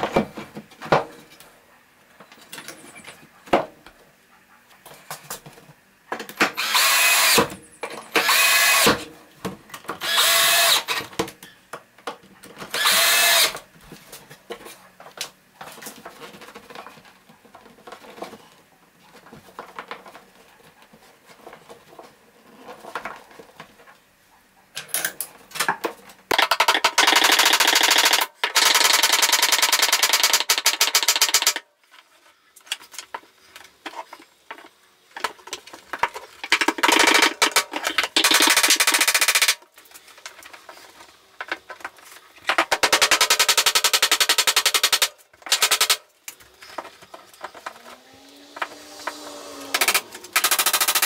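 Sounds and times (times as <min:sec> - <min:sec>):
handling and rustling: 0:39.6 - 0:42.6.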